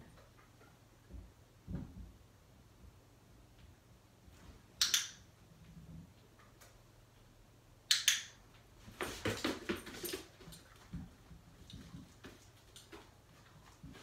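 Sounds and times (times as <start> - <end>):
dog moving across floor: 8.8 - 14.0.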